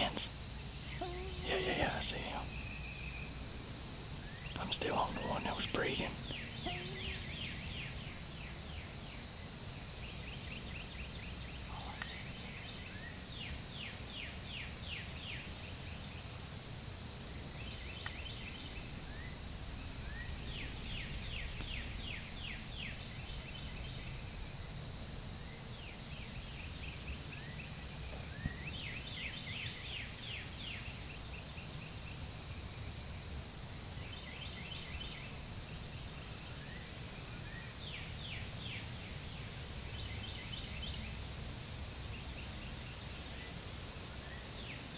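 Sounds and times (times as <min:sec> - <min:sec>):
birds singing: 0:00.0 - 0:03.4, 0:04.2 - 0:09.2
faint low outdoor rumble: 0:00.0 - 0:44.9
steady high-pitched whine: 0:00.0 - 0:44.9.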